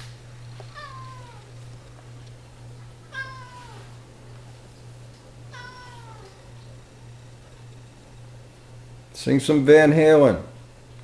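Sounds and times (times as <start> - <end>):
steady low hum: 0.0 - 11.0
cat meowing: 0.7 - 1.5, 3.1 - 4.0, 5.5 - 6.4.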